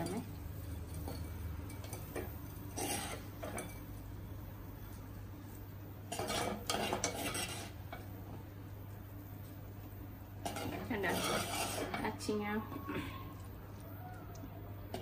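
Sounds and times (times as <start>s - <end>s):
spatula scraping clay pot: 2.7s - 3.7s, 6.1s - 7.8s, 10.4s - 12.2s.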